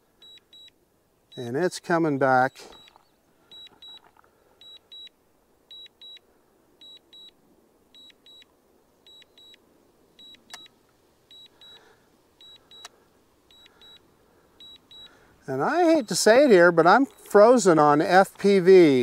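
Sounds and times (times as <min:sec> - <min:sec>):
high double beep alert: 0:02.5 - 0:04.0.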